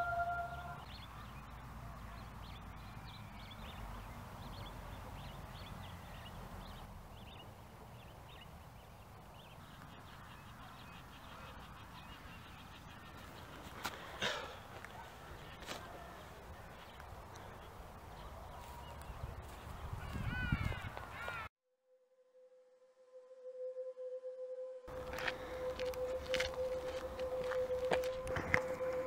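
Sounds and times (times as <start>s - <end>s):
held musical tone: 22.4s - 29.0s.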